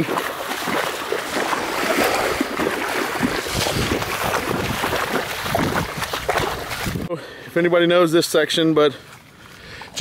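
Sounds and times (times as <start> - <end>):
feet splashing through water: 0.0 - 7.1
wind on microphone: 2.0 - 7.1.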